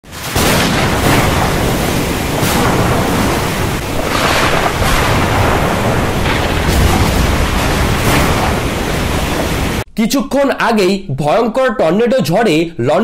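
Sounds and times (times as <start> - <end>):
wind rushing over microphone: 0.7 - 9.8.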